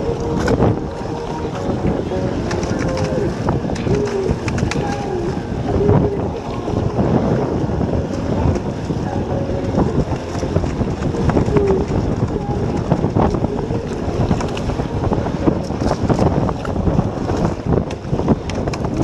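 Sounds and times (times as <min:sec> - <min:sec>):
water splashing along hull: 0:00.0 - 0:19.0
wind buffeting microphone: 0:00.0 - 0:19.0.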